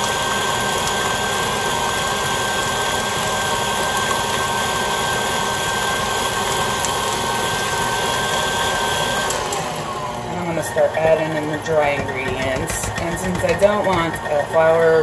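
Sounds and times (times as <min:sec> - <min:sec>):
stand mixer running: 0:00.0 - 0:15.0
beater whipping batter: 0:07.8 - 0:14.4.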